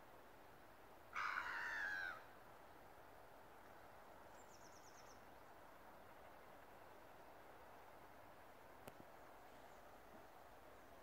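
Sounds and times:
gull call: 1.2s - 2.3s
faint high ticks: 8.8s - 9.1s.

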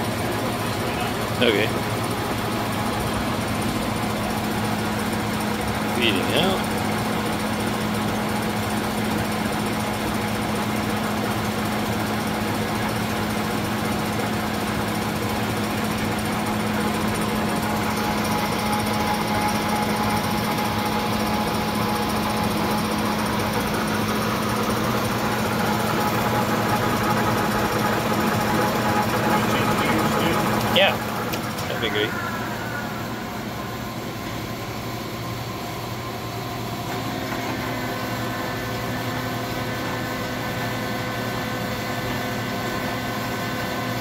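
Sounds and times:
lathe gearing hum: 0.0s - 44.0s
high-pitched whine: 16.1s - 34.9s.

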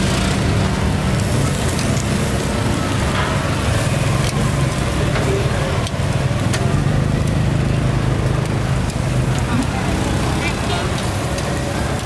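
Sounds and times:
low rumble of street noise: 0.0s - 12.0s
meat sizzling on a grill: 0.0s - 12.0s.

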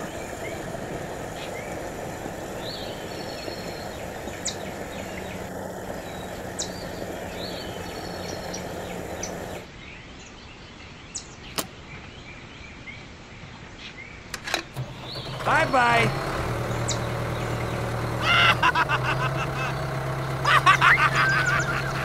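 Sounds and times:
small birds chirping: 0.0s - 22.0s
sharp clicks: 11.5s - 11.8s.

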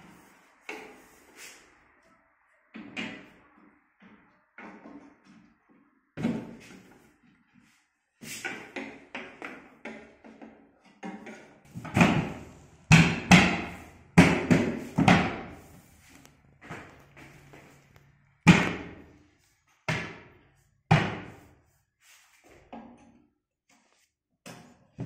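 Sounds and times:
knocks on cabinet panels: 8.5s - 15.6s, 18.4s - 19.1s, 19.9s - 21.5s.

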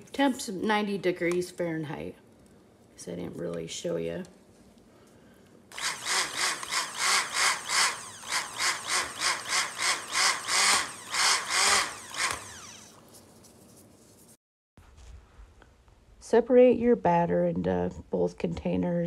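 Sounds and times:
stick blender whirring in bursts: 5.7s - 13.0s.

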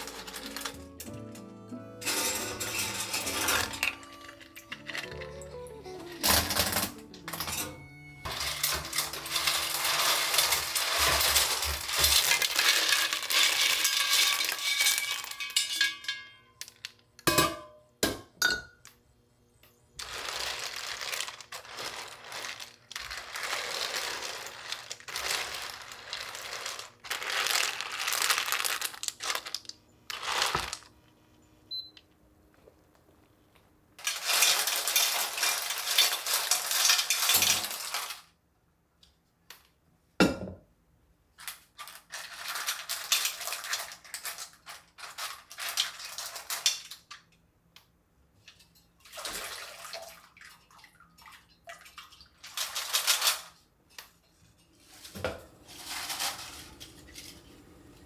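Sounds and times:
kitchen items clinking: 0.0s - 18.9s, 20.0s - 30.9s, 34.0s - 38.3s, 41.4s - 47.3s, 52.0s - 58.0s.

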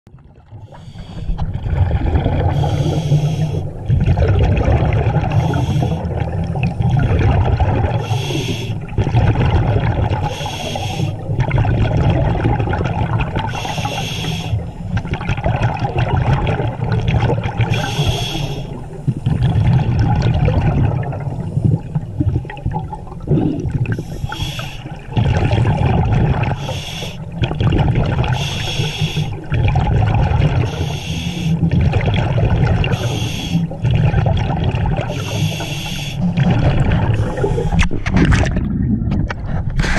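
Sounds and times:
scuba regulator hiss and bubbling: 0.7s - 1.4s, 2.3s - 3.7s, 5.2s - 6.1s, 7.9s - 8.9s, 10.2s - 11.4s, 13.5s - 14.9s, 17.7s - 19.2s, 23.4s - 25.0s, 26.5s - 27.4s, 28.3s - 29.5s, 30.6s - 31.7s, 32.8s - 33.8s, 35.1s - 36.4s, 37.0s - 38.1s.

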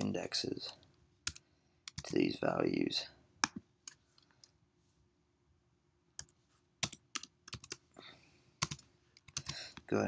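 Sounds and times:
computer keyboard keystrokes: 1.2s - 2.2s, 6.2s - 7.8s, 8.6s - 9.6s.

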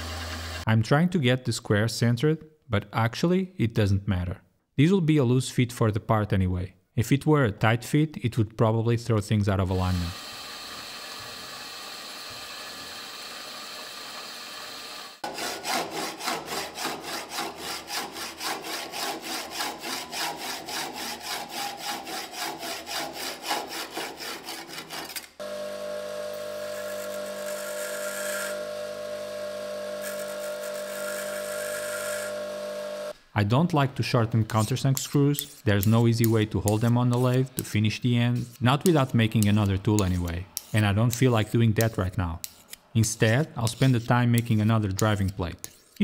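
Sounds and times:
bench grinder humming: 0.0s - 0.7s, 9.9s - 33.2s
hacksaw cutting metal: 10.2s - 25.4s, 34.5s - 46.0s.

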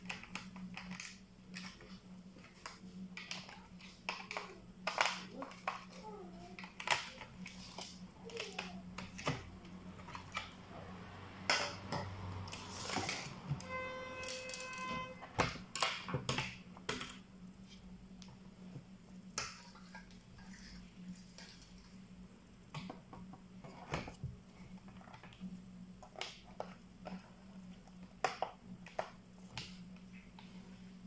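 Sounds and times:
low steady hum: 0.0s - 31.0s
brief pitched tone: 13.6s - 15.3s.

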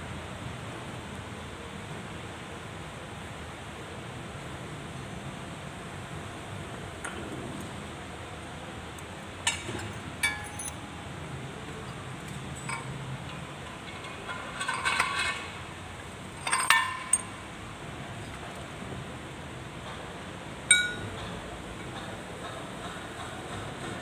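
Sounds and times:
steady background hiss: 0.0s - 24.0s
metal pipe clinking: 9.5s - 10.9s, 11.9s - 15.5s, 16.4s - 17.5s, 20.7s - 21.2s.

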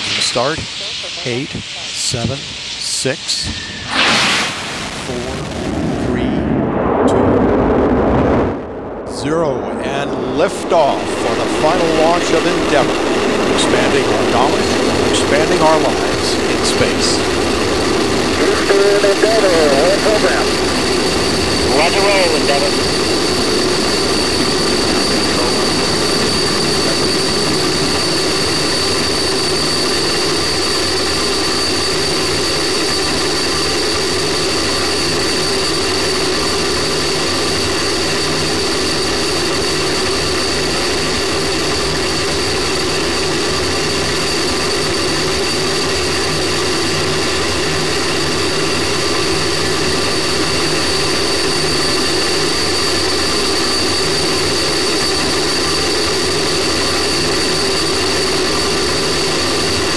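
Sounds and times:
rocket roar: 0.0s - 59.9s
high-pitched tone: 18.2s - 23.0s.

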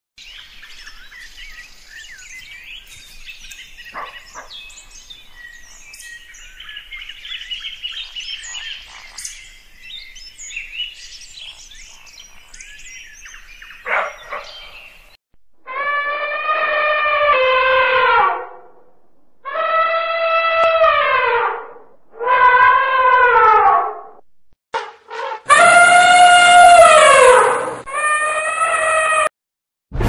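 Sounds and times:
birds chirping chorus: 0.2s - 15.2s
louder bird call: 25.5s - 29.3s.

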